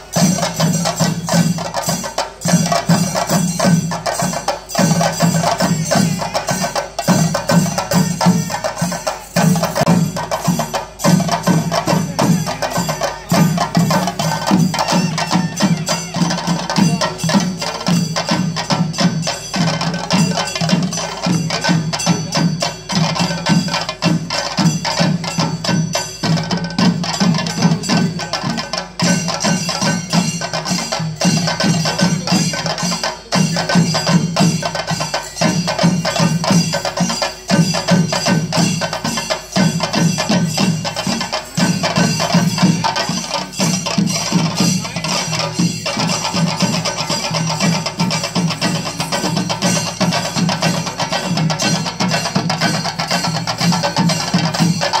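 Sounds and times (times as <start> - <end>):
drums beating fast rhythm: 0.0 - 55.0
metal hand cymbals ringing: 0.0 - 55.0.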